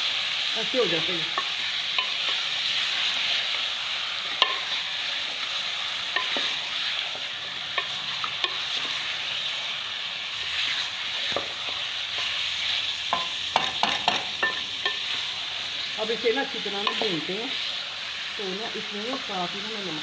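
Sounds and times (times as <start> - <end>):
meat sizzling in a pot: 0.0 - 20.0
spatula scraping a pot: 6.1 - 9.2, 10.4 - 15.4.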